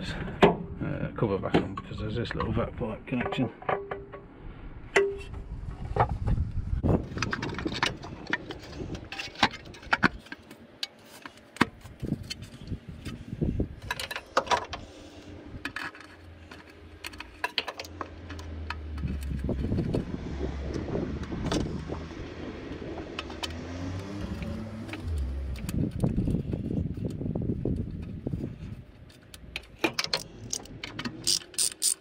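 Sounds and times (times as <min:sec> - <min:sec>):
low rumble: 0:04.0 - 0:09.1, 0:18.0 - 0:31.1
plastic housing clicks and rattles: 0:15.6 - 0:21.9, 0:29.0 - 0:32.0.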